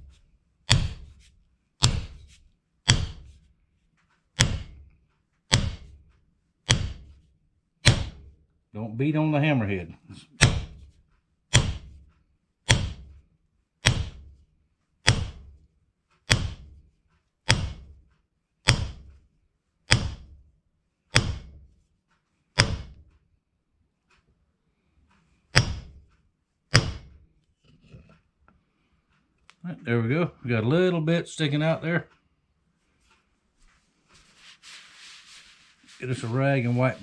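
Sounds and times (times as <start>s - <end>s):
hammer handle knocking on anvil: 0.7s - 1.2s, 1.8s - 2.3s, 4.4s - 4.8s, 7.8s - 8.2s, 10.4s - 10.8s, 11.5s - 12.0s, 13.9s - 14.2s, 19.9s - 20.3s, 21.2s - 21.6s, 22.6s - 23.0s, 25.6s - 26.0s, 26.7s - 27.2s.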